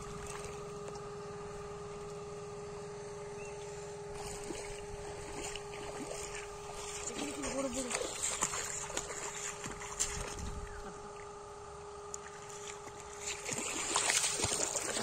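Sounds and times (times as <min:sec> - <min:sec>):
splashing in shallow muddy water: 0:00.0 - 0:00.8, 0:04.1 - 0:11.0, 0:12.2 - 0:15.0
water pump humming: 0:00.0 - 0:15.0.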